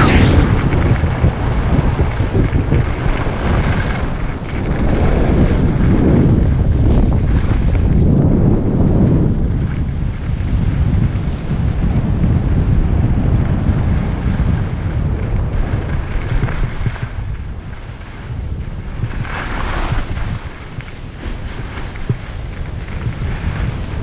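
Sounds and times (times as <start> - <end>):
wind buffeting microphone: 0.0 - 24.0
ski edges scraping snow: 19.1 - 24.0.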